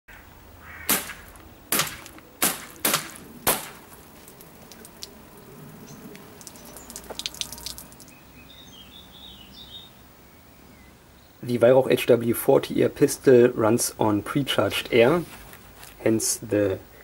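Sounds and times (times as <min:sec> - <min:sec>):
air pistol shots: 0:00.9 - 0:03.8
milk dripping onto wooden table: 0:03.8 - 0:05.2, 0:06.2 - 0:08.1.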